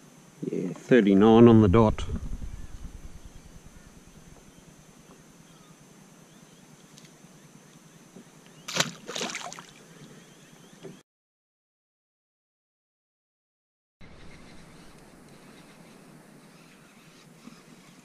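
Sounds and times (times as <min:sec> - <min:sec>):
quiet hiss: 0:00.0 - 0:08.7
fish splashing into water: 0:08.7 - 0:09.8.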